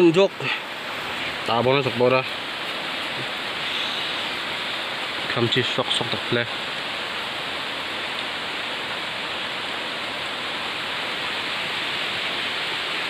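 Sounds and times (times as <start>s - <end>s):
steady rain: 0.0s - 13.0s.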